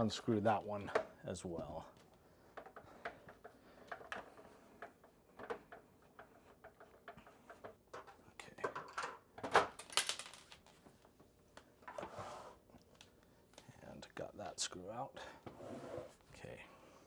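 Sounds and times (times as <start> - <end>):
clattering handling noise: 2.0 - 12.1.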